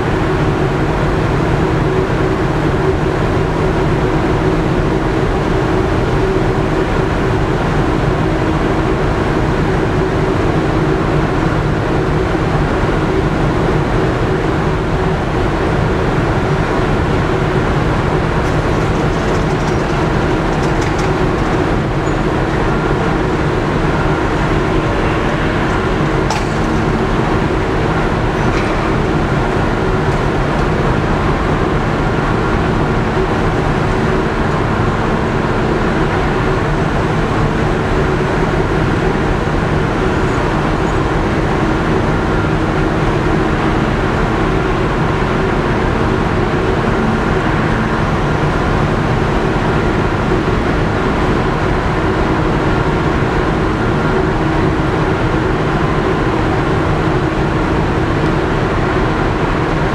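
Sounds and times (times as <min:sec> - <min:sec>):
ship engines droning: 0:00.0 - 0:59.9.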